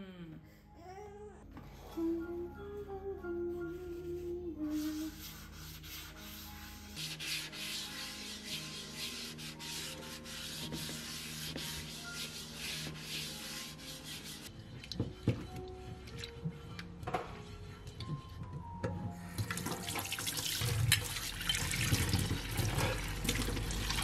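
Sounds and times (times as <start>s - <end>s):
paper rubbing in a frying pan: 4.6s - 14.5s.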